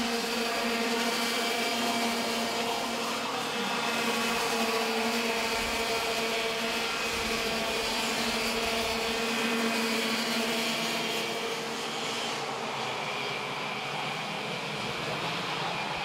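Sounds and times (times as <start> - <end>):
kart engines passing: 0.0 - 12.7.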